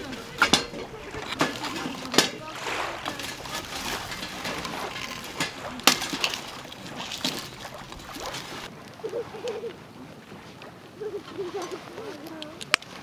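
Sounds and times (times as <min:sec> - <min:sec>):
wood fire crackling and popping: 0:00.0 - 0:08.7.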